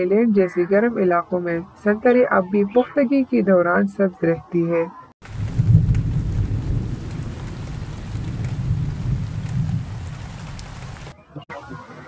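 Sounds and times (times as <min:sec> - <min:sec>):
deep thunder rumble: 0:05.2 - 0:11.1
steady rain hiss: 0:05.2 - 0:11.2.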